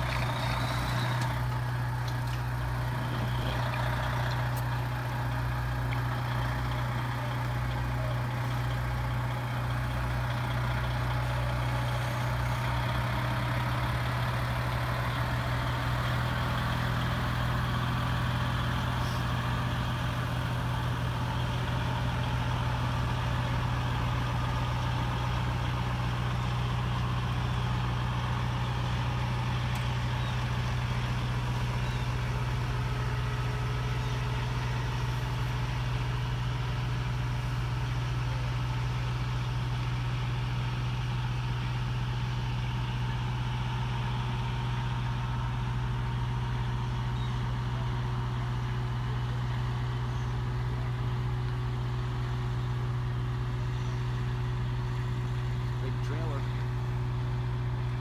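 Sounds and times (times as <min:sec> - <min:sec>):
diesel truck engine running: 0:00.0 - 0:58.0.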